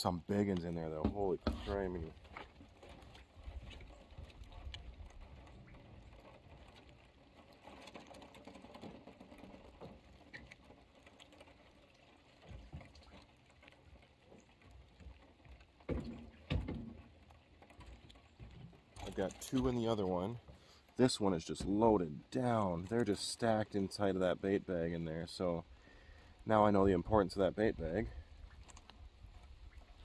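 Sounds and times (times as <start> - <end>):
crawfish clicking and scratching: 0.1 - 30.0.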